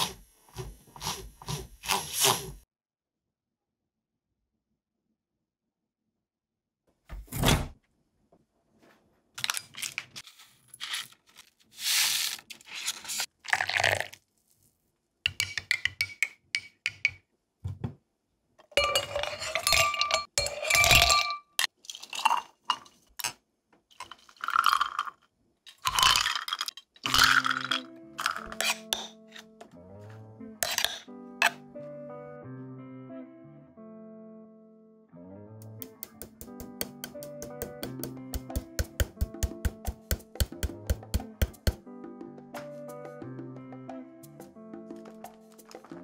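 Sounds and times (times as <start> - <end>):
ice cubes clinking in glass: 13.5 - 14.2, 18.7 - 22.9, 24.0 - 29.1
spoon clinking against glass: 18.8 - 21.6.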